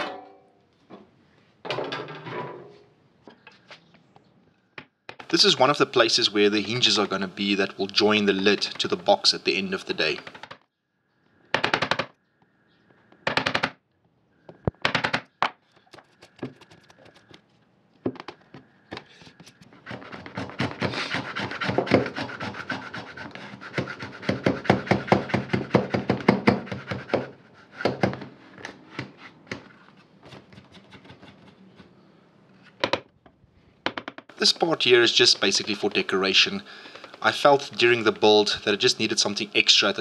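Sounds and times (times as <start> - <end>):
router plane scraping wood: 19.6 - 25.7
chisel paring wood: 19.8 - 28.2.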